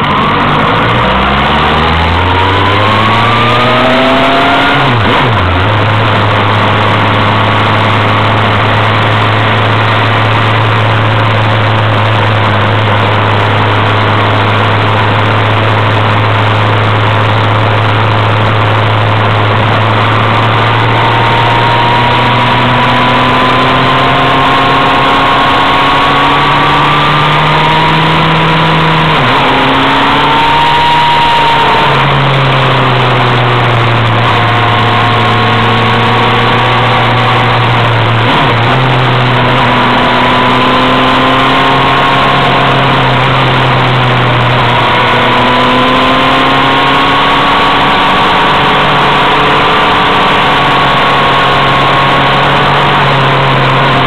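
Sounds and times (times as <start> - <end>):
vehicle engine revving: 0.0 - 54.0.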